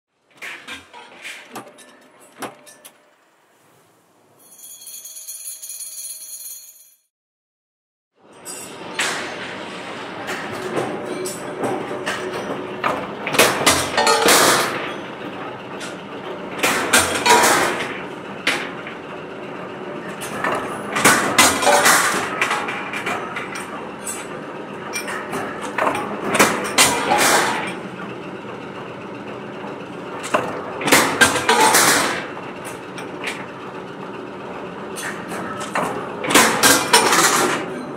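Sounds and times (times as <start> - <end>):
power press running: 8.3 - 37.9.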